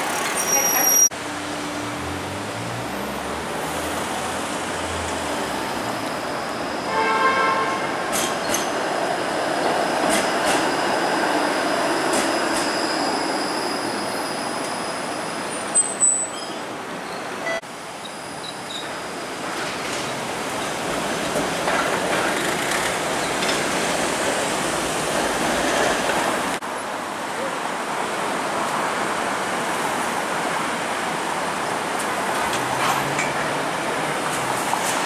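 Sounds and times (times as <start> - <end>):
high wheel squeal: 0.0 - 1.1, 5.7 - 8.7, 10.1 - 19.0
city street traffic: 0.0 - 35.0
streetcar rumbling past: 0.0 - 35.0
sharp track clacks: 20.9 - 24.4.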